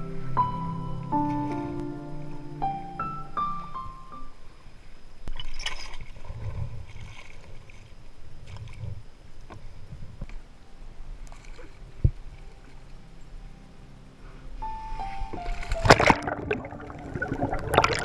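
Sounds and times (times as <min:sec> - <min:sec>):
water splashing around paddleboard: 0:05.3 - 0:09.7, 0:11.3 - 0:12.8, 0:14.8 - 0:18.0.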